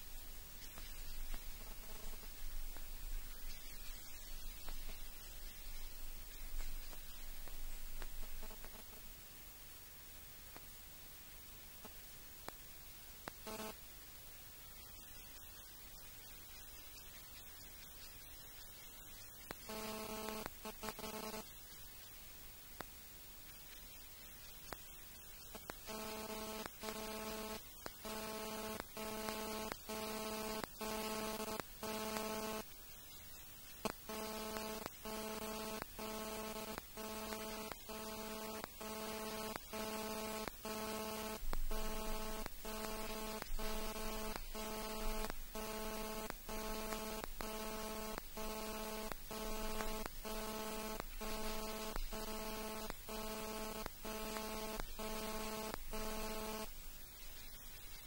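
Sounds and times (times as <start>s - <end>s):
pulsing electronic interference buzz: 0.6s - 9.0s, 13.2s - 13.8s, 18.8s - 21.7s, 24.7s - 33.1s, 33.7s - 56.8s.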